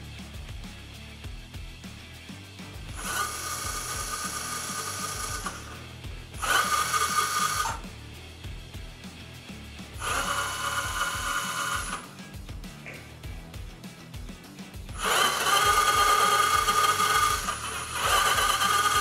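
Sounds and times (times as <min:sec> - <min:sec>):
quiet background music: 0:00.0 - 0:19.0
electric mechanism whining: 0:02.9 - 0:07.9, 0:10.0 - 0:12.2, 0:15.0 - 0:19.0.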